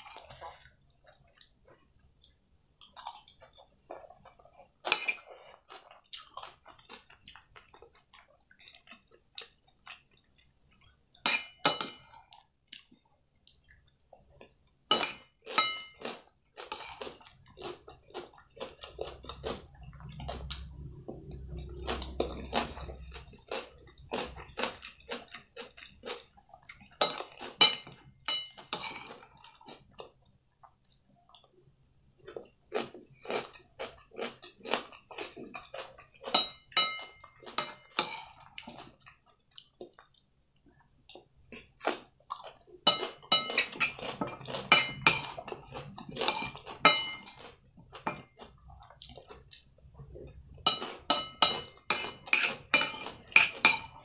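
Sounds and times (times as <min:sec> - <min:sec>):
chewing food: 0:00.0 - 0:11.2, 0:12.0 - 0:31.6, 0:32.2 - 0:54.0
metal spoon scraping ceramic plate: 0:27.0 - 0:29.4, 0:42.9 - 0:45.6, 0:46.2 - 0:47.4, 0:50.7 - 0:54.0.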